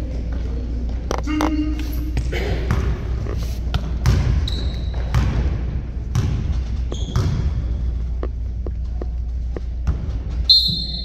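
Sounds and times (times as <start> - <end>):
basketball bouncing on court: 2.2 - 11.0.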